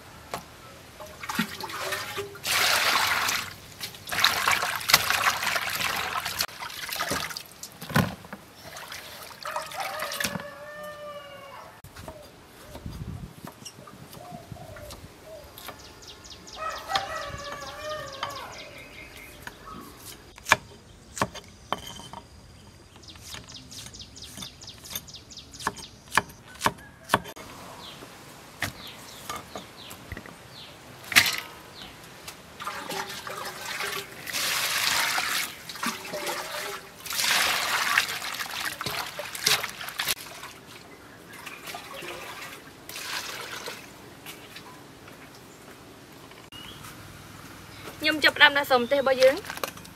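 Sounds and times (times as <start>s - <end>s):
splashing water in a bowl: 1.1s - 7.8s, 8.6s - 10.8s, 32.6s - 43.9s
rooster crowing: 9.4s - 11.8s, 16.5s - 19.0s, 26.4s - 27.9s.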